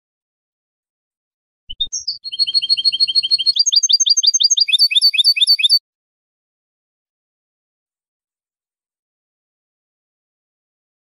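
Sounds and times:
goldfinch singing: 0:01.7 - 0:05.8.

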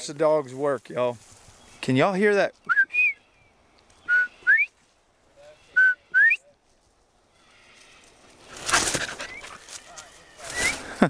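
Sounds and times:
quail whistled call: 0:02.6 - 0:03.3, 0:04.0 - 0:04.8.

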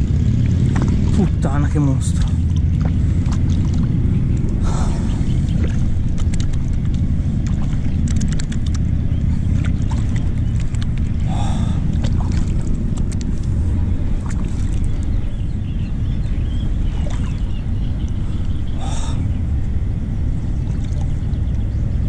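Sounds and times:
water splashing on hull: 0:00.0 - 0:22.0
wind rumble on microphone: 0:00.0 - 0:22.0
small clicks: 0:06.2 - 0:08.9.

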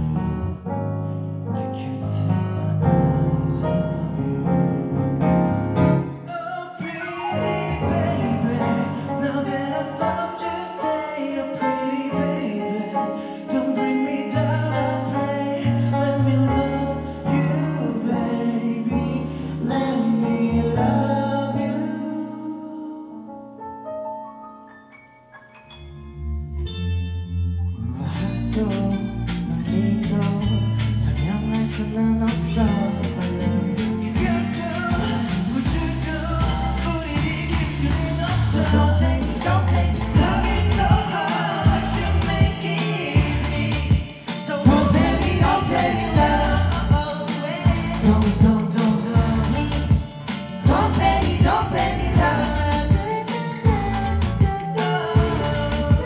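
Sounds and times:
low bass line: 0:00.0 - 0:06.2, 0:07.4 - 0:09.7, 0:25.7 - 0:56.0
instrumental backing music: 0:00.0 - 0:56.0
stage piano sustained chords: 0:00.0 - 0:56.0
man singing into a microphone: 0:01.5 - 0:04.9, 0:06.1 - 0:23.6, 0:27.9 - 0:56.0.

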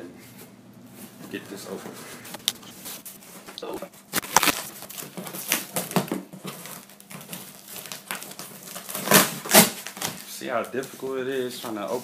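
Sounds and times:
cardboard rustling: 0:01.6 - 0:12.0
scissors cutting packing tape: 0:04.1 - 0:10.2
tape ripping: 0:04.1 - 0:10.9.

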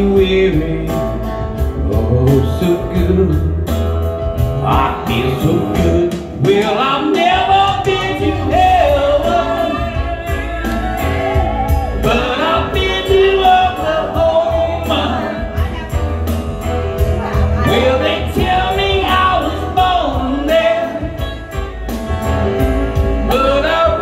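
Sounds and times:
man singing into microphone: 0:00.0 - 0:16.1, 0:17.2 - 0:21.9, 0:23.2 - 0:24.0
bass line: 0:00.0 - 0:24.0
drum beat: 0:04.4 - 0:24.0.

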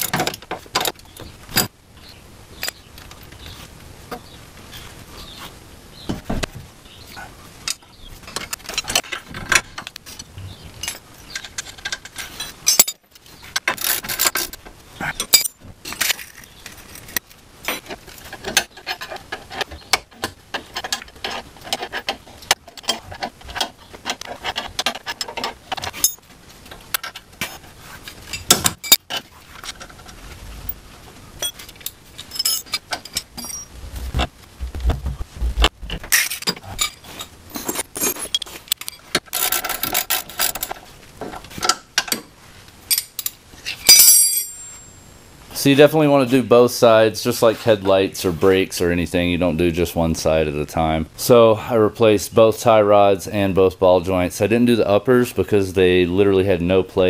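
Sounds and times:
metal tools clinking and clattering: 0:10.8 - 0:13.0, 0:15.2 - 0:16.4, 0:31.4 - 0:33.7, 0:42.9 - 0:45.0.

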